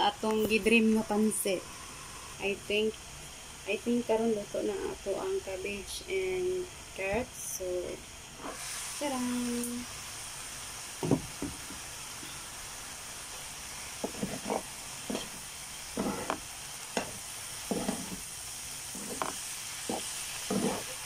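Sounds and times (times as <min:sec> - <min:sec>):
vegetables sizzling in frying pan: 0:00.0 - 0:21.0
utensils scraping and tapping pan: 0:14.0 - 0:15.4, 0:16.0 - 0:16.4, 0:17.0 - 0:18.2, 0:18.9 - 0:21.0.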